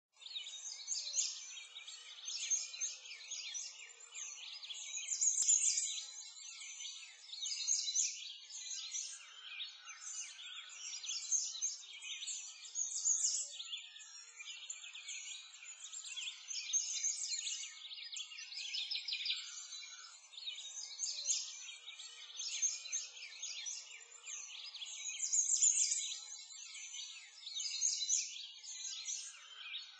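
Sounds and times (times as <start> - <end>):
small birds chirping: 0.1 - 29.9.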